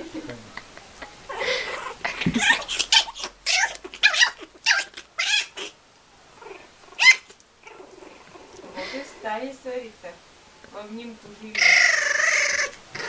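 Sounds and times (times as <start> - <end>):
kitten yowling: 1.3 - 5.8, 11.6 - 13.0.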